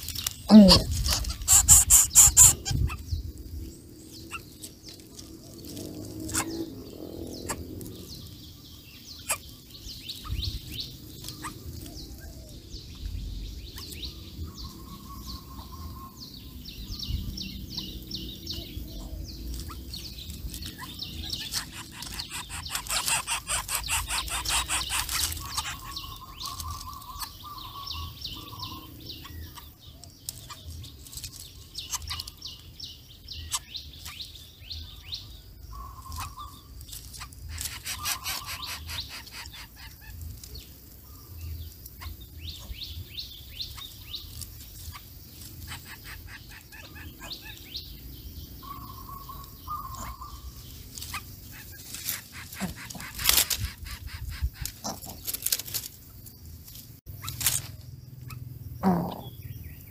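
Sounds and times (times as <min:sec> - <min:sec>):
buzzy bird chattering: 0:00.0 - 0:03.4, 0:06.2 - 0:07.8, 0:09.1 - 0:11.8, 0:17.8 - 0:30.7, 0:31.6 - 0:32.7, 0:35.7 - 0:40.5, 0:43.5 - 0:47.9, 0:48.5 - 0:55.8
birds chirping: 0:00.0 - 0:59.9.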